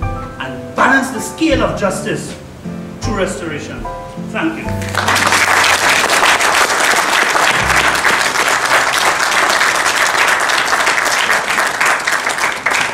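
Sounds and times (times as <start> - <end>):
audience applauding: 4.8 - 12.9.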